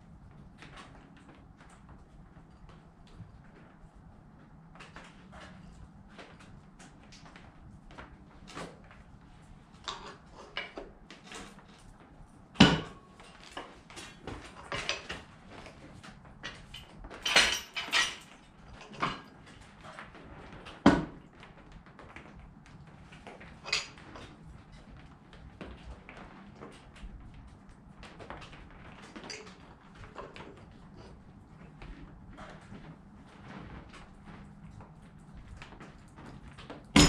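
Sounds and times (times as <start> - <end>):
metal tools clinking and clanking: 16.5 - 19.3, 23.6 - 24.3.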